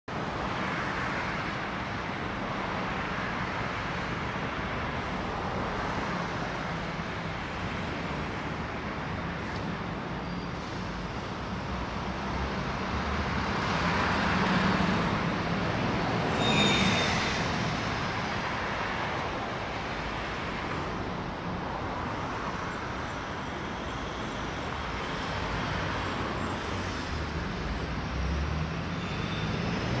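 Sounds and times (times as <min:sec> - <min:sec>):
road traffic tyres and engines: 0:00.1 - 0:30.0
brief high squeal: 0:16.3 - 0:17.5, 0:29.0 - 0:29.7.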